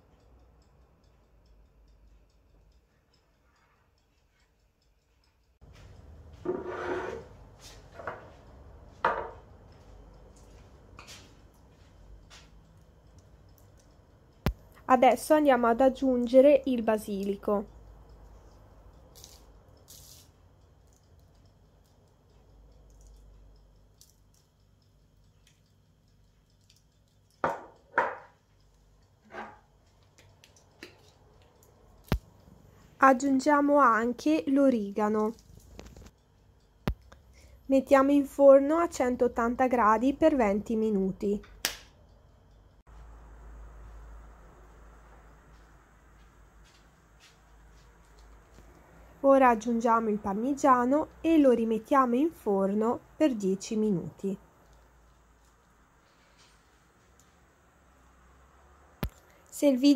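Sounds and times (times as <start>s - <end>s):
scraping rub on counter: 6.4s - 7.3s
knocks on counter: 9.0s - 9.4s, 27.4s - 28.3s.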